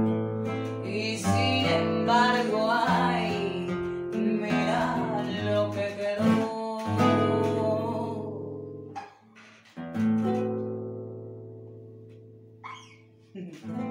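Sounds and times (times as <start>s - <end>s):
acoustic guitar: 0.0s - 13.9s
woman singing: 0.7s - 8.6s.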